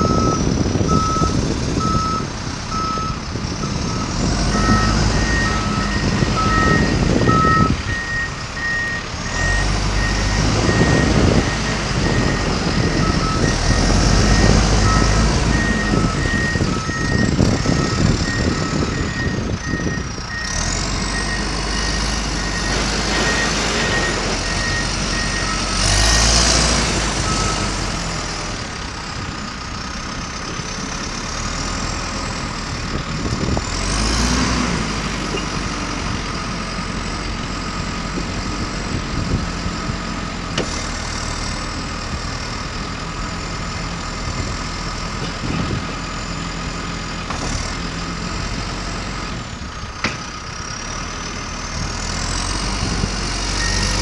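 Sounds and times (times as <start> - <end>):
reversing alarm beeps: 0.0 - 28.1, 53.4 - 54.0
diesel engine revving: 0.0 - 54.0.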